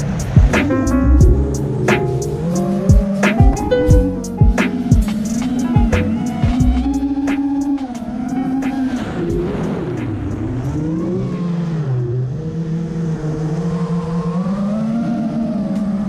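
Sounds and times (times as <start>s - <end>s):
quadcopter motors whining: 1.6s - 16.0s.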